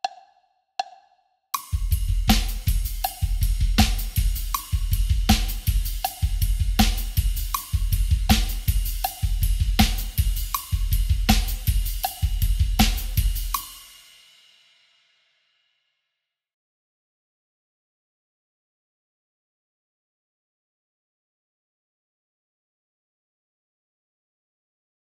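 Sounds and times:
snare drum backbeat: 1.6s - 13.9s
double bass drum kicks: 1.7s - 13.6s.

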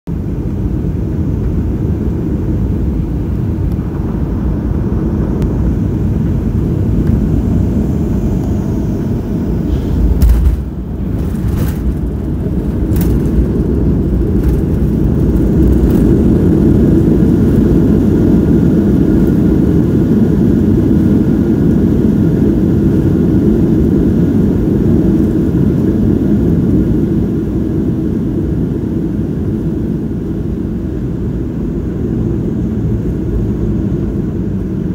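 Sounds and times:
jet engine and airflow noise: 0.1s - 34.9s
sharp rattles: 10.1s - 16.2s.

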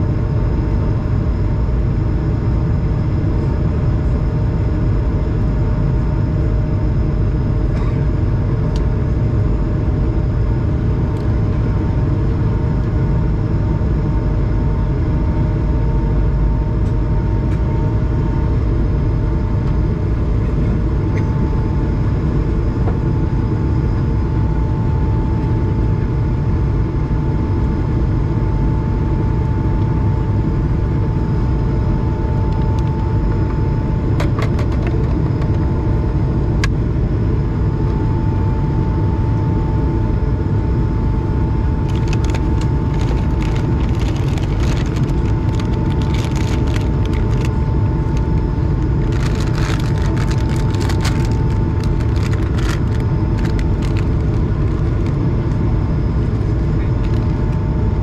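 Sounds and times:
jet engine and airflow noise in cabin: 0.0s - 58.0s
crackles: 41.8s - 55.2s.

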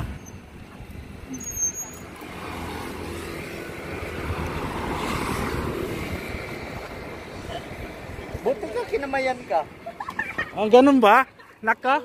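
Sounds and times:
vehicle engine passing by: 1.3s - 9.0s.

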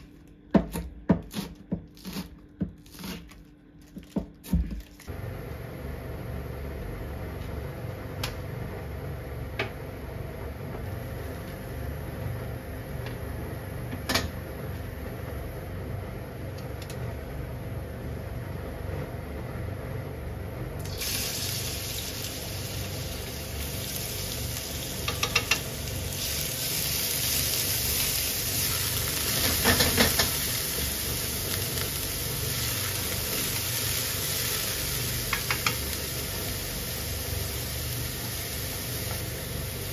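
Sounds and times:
water running from a tap: 20.9s - 25.5s.

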